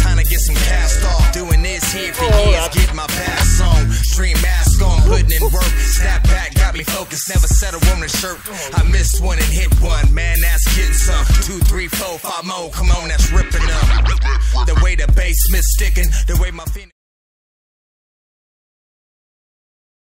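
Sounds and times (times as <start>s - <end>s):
heavy bass: 0.0s - 6.7s, 8.8s - 11.9s, 12.7s - 16.6s
rapping over hip-hop beat: 0.0s - 16.9s.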